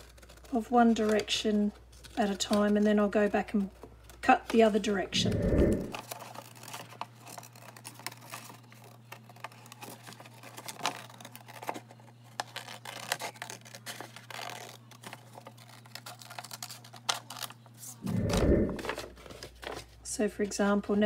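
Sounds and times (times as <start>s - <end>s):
scissors snipping paper: 6.0s - 17.6s
faint low hum: 18.0s - 19.0s.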